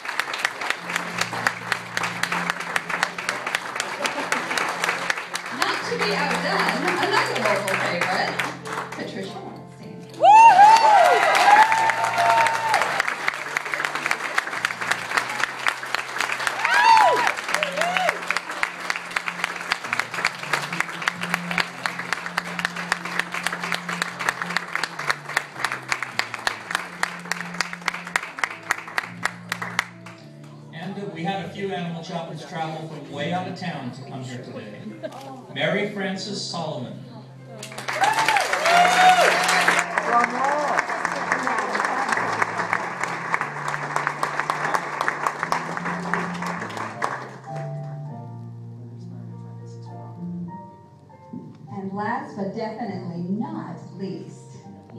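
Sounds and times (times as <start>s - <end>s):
audience applauding: 0.0s - 9.2s, 10.2s - 30.6s, 37.5s - 48.2s
soft background music: 0.0s - 54.9s
low sustained background music: 40.7s - 54.9s.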